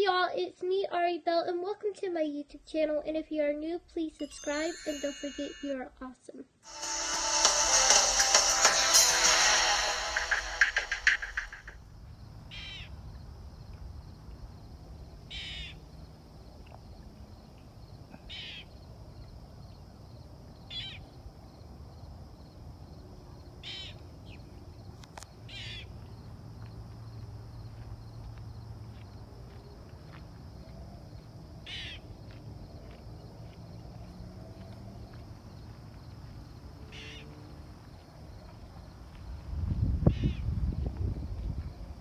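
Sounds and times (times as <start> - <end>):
high-pitched drone: 4.2 - 5.8, 6.7 - 11.6
intro music: 6.7 - 11.8
bird calls: 12.5 - 13.0, 15.3 - 15.8, 18.2 - 18.8, 20.7 - 21.1, 25.5 - 25.9, 31.6 - 32.0.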